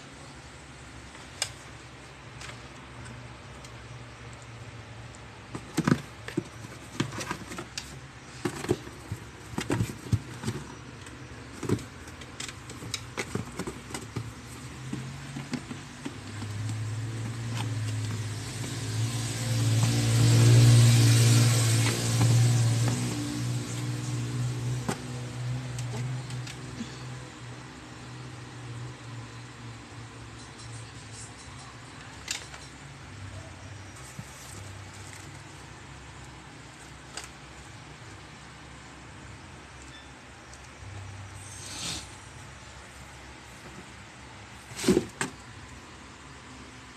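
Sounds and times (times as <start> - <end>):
cat pawing cardboard box: 5.4 - 24.0, 43.6 - 45.5.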